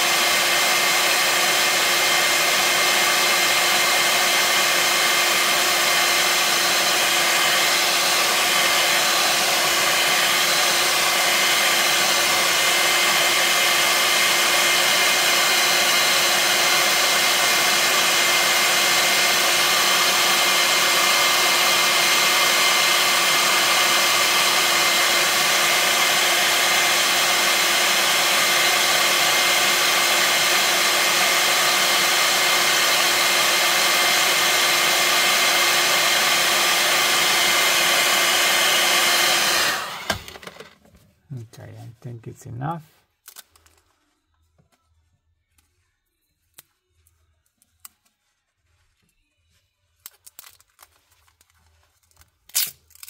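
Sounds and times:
hair dryer blowing: 0.0s - 40.8s.

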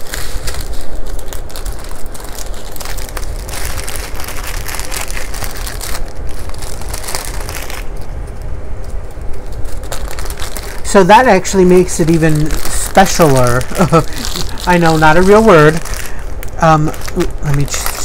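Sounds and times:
plastic packets crinkling: 0.0s - 18.0s.

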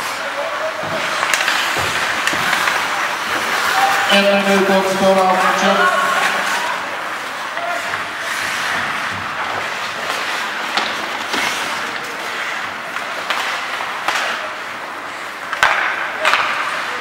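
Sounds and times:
hockey sticks and puck clacking: 0.0s - 17.0s
skate blades scraping ice: 0.0s - 17.0s.

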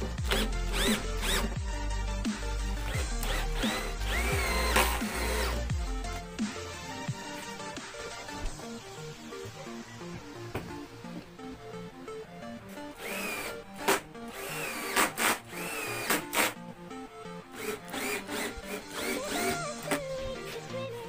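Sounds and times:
cordless drill motor whine: 0.0s - 1.8s, 2.7s - 6.0s, 12.9s - 16.6s, 17.6s - 20.0s
background music: 0.0s - 21.0s.

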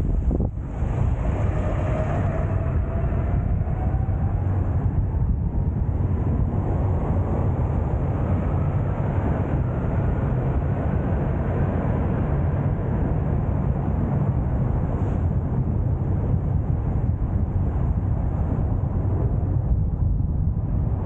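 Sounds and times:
car road and engine rumble: 0.0s - 21.0s.

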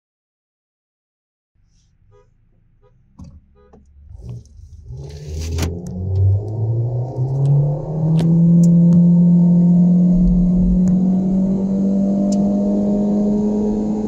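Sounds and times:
brief low thump: 3.2s - 3.5s
car engine droning at high revs: 3.2s - 14.0s.

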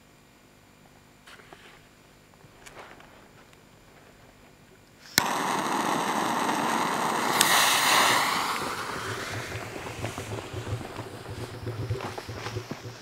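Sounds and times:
jet-torch lighter flame hissing: 5.0s - 13.0s
lighter click: 5.1s - 9.0s.

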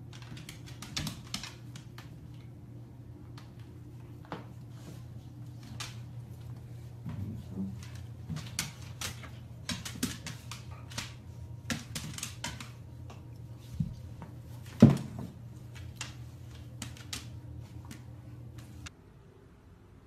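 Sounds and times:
dog claws clicking on wooden floor: 0.0s - 2.6s, 5.4s - 18.8s.

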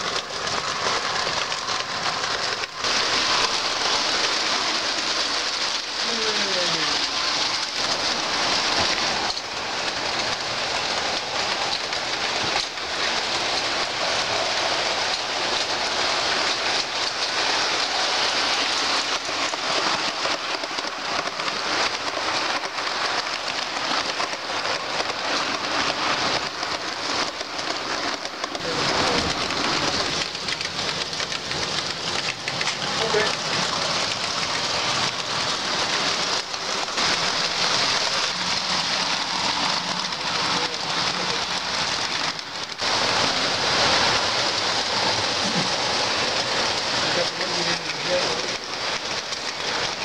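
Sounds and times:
model train wheels clattering on rails: 0.0s - 50.0s.

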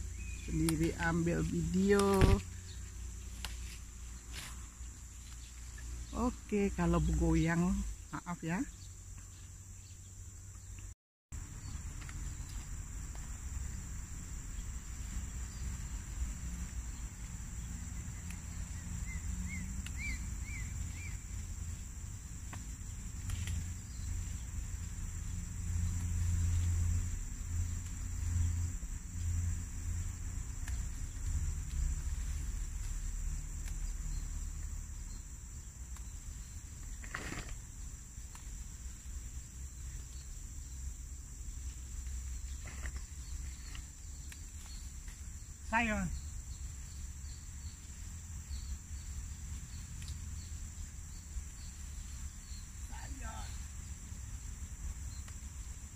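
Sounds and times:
bird chirping: 0.0s - 3.3s, 18.0s - 21.4s
insects droning: 0.0s - 55.9s.

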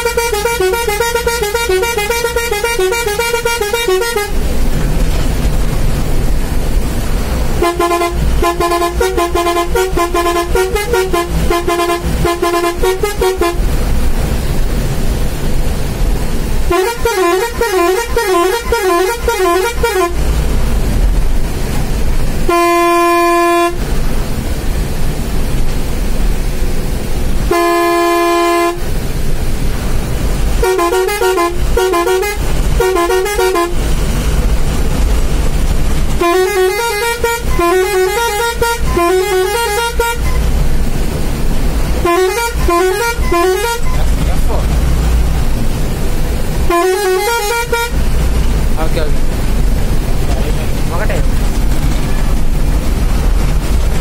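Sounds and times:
warbling musical air horn: 0.0s - 4.4s, 7.6s - 13.6s, 16.7s - 20.2s, 22.5s - 23.8s, 27.5s - 28.9s, 30.6s - 33.9s, 36.2s - 40.5s, 42.0s - 44.1s, 46.6s - 48.0s
steady air horn blasts: 0.0s - 4.5s, 7.6s - 13.6s, 16.7s - 20.2s, 22.4s - 23.9s, 27.5s - 28.9s, 30.6s - 33.9s, 36.2s - 40.5s, 42.0s - 44.2s, 46.6s - 48.0s
low rumble: 4.4s - 16.7s, 32.4s - 36.3s, 40.3s - 46.7s, 47.9s - 54.0s.

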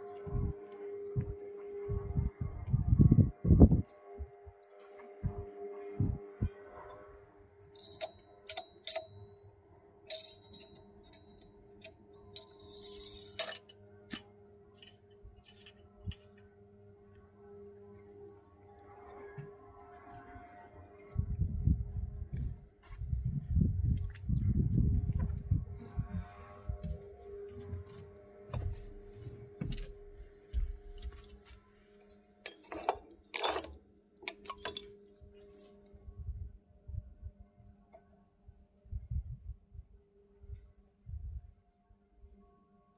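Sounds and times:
faint hum: 0.0s - 42.9s
light metallic clicks and clinks: 7.7s - 9.4s, 10.1s - 16.3s
rustling scrape: 12.7s - 13.7s.

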